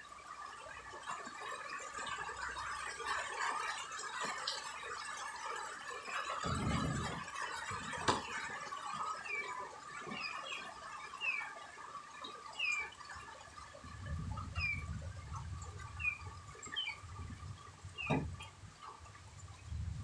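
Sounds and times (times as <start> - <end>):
faint steady hum: 0.0 - 20.0
birds chirping: 6.4 - 11.6, 12.4 - 13.2, 14.4 - 18.5.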